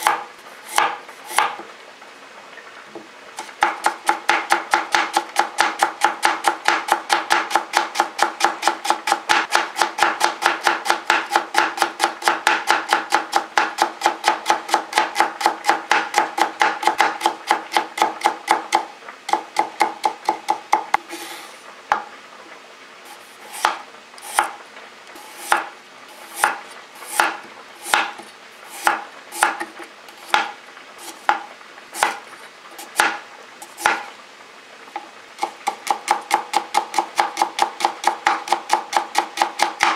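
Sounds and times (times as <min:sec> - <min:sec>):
knife cutting carrot on board: 0:00.0 - 0:01.6, 0:03.4 - 0:22.0, 0:23.1 - 0:24.6, 0:25.2 - 0:32.2, 0:32.8 - 0:34.1.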